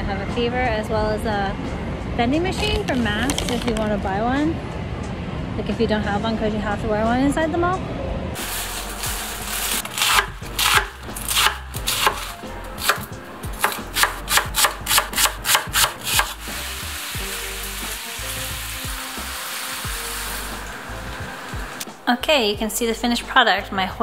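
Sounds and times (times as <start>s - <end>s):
food sizzling in a pan: 8.4s - 10.0s, 16.0s - 21.8s
knife chopping on plastic cutting board: 9.9s - 16.4s.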